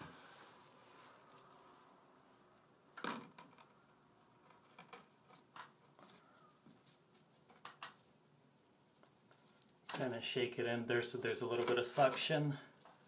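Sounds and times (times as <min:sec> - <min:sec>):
tile clicks and scrapes: 0:04.4 - 0:06.2.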